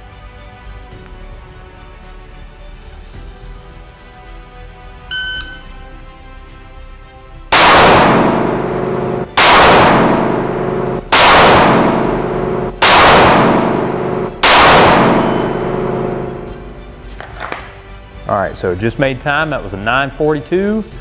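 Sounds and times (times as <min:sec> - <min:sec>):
pistol shots echoing indoors: 0:07.5 - 0:16.7.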